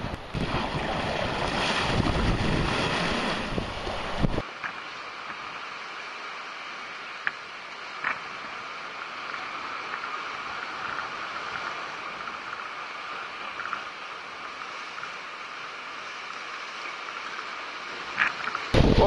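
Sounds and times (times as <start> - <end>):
sea washing against rocky shore: 0.0 - 5.5.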